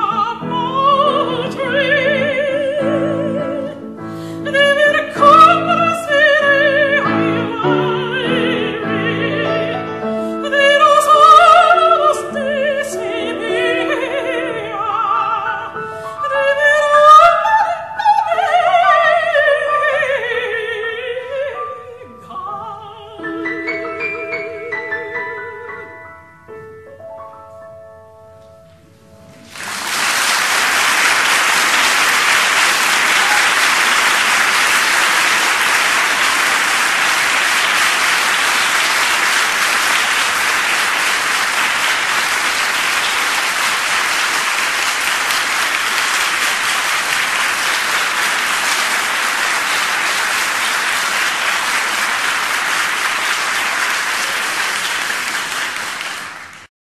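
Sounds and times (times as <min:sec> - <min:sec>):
song accompaniment: 0:00.0 - 0:56.6
audience applauding: 0:29.4 - 0:56.7.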